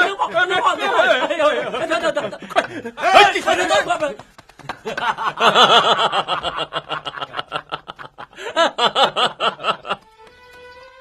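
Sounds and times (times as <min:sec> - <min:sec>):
laughter in quick bursts: 0:04.7 - 0:10.0
soft music with held notes: 0:10.0 - 0:11.0.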